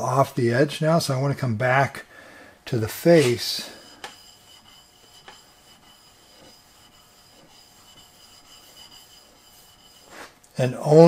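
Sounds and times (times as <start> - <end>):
chisel scraping on water stone: 3.2 - 10.4.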